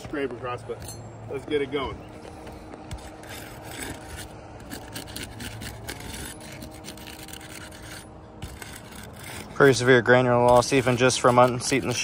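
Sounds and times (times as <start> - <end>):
tool scraping roof shingle: 2.8 - 12.0.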